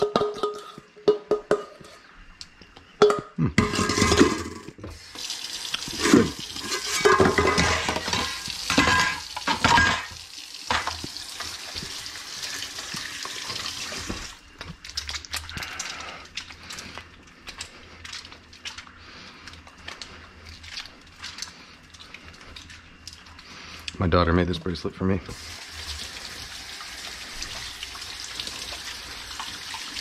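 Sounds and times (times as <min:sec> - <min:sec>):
brush scrubbing metal: 0:05.9 - 0:09.1
soapy hands rubbing: 0:11.0 - 0:23.8.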